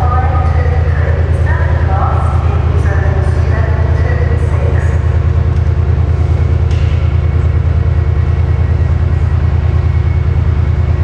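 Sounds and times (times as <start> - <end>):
diesel train engines idling: 0.0 - 11.0.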